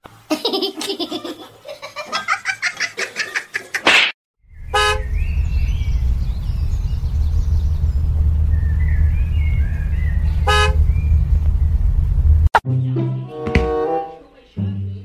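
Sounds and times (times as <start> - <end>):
faint bird chirps: 4.5 - 11.7
low rumble inside car: 4.6 - 12.5.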